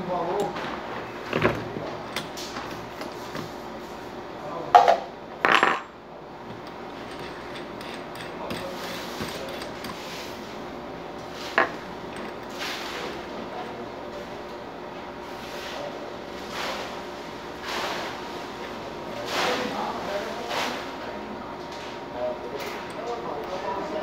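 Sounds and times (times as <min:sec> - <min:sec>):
tools clattering: 0:06.5 - 0:10.0.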